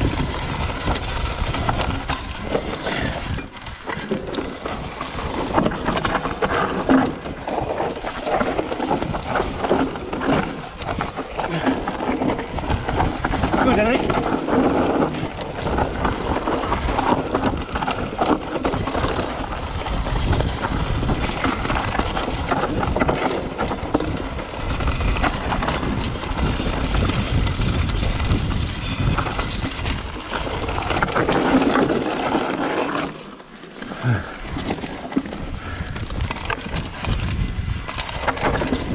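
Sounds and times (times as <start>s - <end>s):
bike tyres rumbling over dirt: 0.0s - 38.9s
chain and frame rattling: 3.9s - 26.1s, 29.8s - 35.6s.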